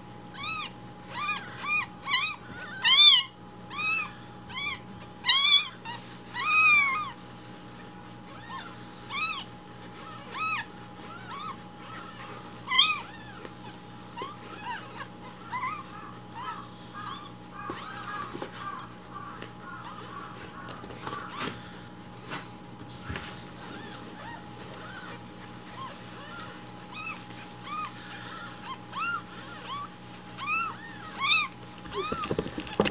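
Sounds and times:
kitten mewing: 0.4 - 7.2, 23.6 - 32.9.

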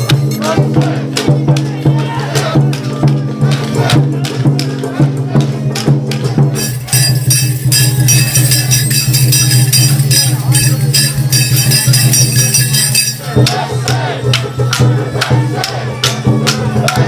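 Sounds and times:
festival music with beats: 0.0 - 17.0
metallic jingling of staff rings: 6.6 - 13.4.

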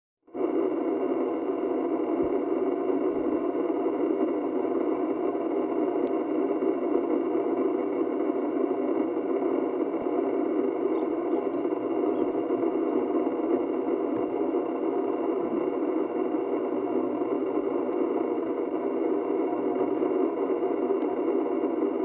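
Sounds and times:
low mechanical hum: 0.3 - 22.0
faint high chirps: 10.8 - 12.9.

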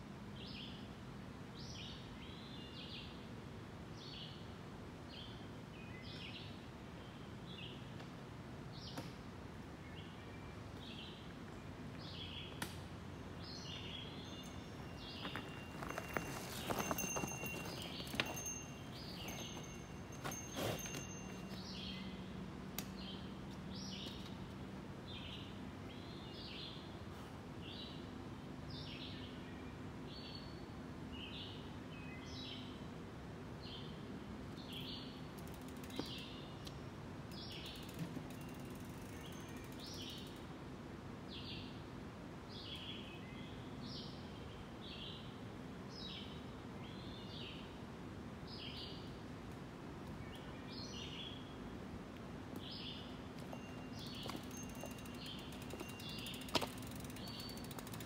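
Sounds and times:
outdoor background noise: 0.0 - 58.0.

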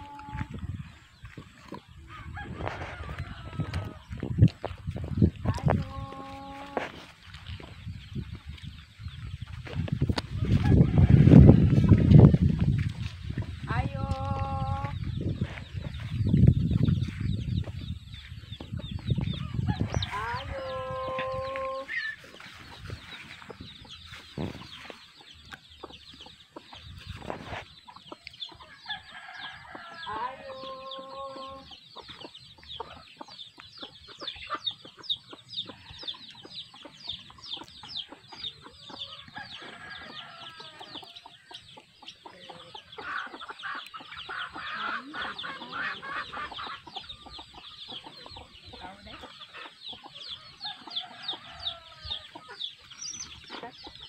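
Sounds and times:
chickens clucking: 0.0 - 54.0
chicks peeping: 0.0 - 54.0
rooster crowing: 10.4 - 11.9.

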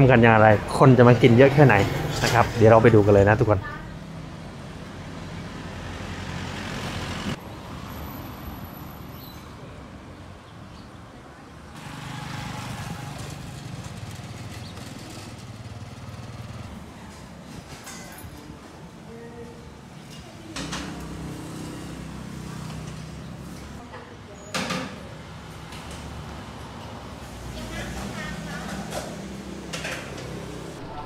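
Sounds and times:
vehicles passing: 0.0 - 31.0
engine running close by: 11.8 - 16.8.

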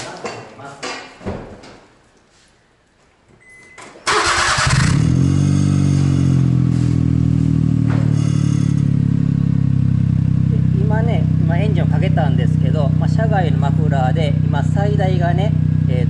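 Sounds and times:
engine idling: 4.1 - 16.0.

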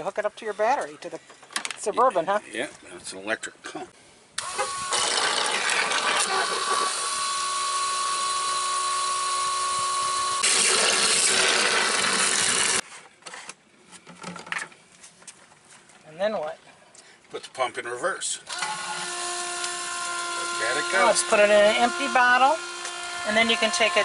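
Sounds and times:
electric pump whining: 4.4 - 12.8, 18.5 - 24.0.

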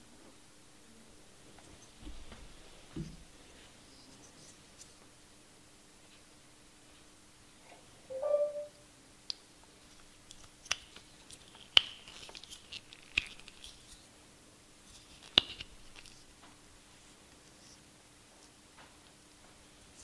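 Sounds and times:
brief squeak: 8.1 - 8.8
sharp plastic snaps: 10.3 - 13.8.

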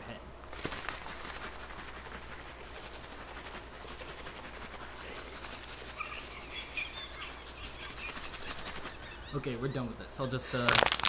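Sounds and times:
water bottle being shaken: 10.7 - 11.0.

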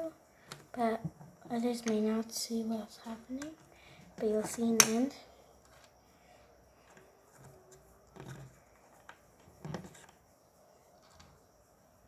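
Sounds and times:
plastic bricks clicking on table: 4.4 - 5.0.

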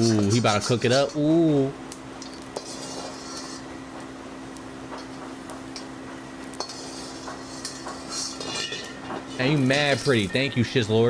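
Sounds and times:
metal utensils scraping a pan: 0.0 - 1.4, 2.2 - 3.8, 6.5 - 10.5
steady hum: 0.0 - 11.0.

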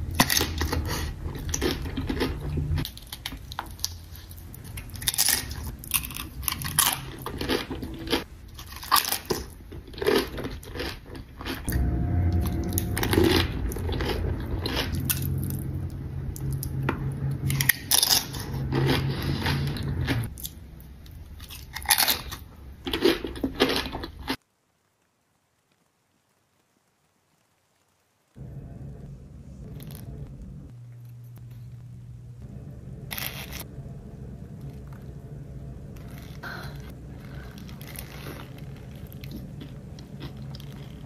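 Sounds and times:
crunching chips: 0.0 - 11.7, 17.5 - 20.6, 21.4 - 24.4, 36.0 - 41.0
chewing: 0.1 - 11.7, 36.0 - 41.0
low hum: 11.7 - 21.4, 28.4 - 41.0.

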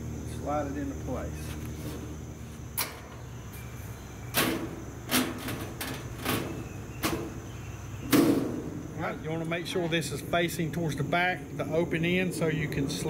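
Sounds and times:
metal cabinet door clacking: 4.3 - 7.4.

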